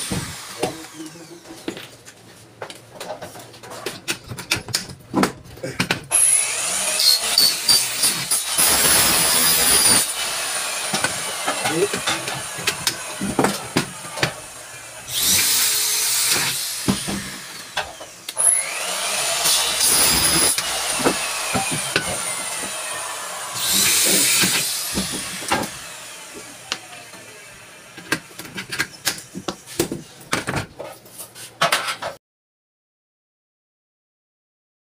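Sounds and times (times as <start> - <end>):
cordless drill motor spinning: 6.1 - 28.5.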